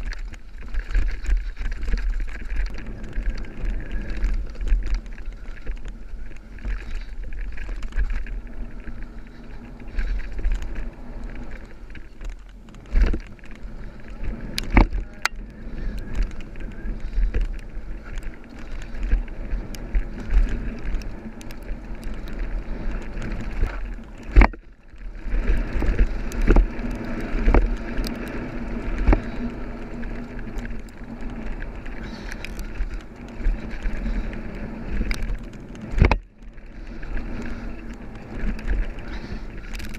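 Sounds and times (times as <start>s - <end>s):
bike rattling: 0.0s - 39.9s
wind buffeting microphone: 0.0s - 39.9s.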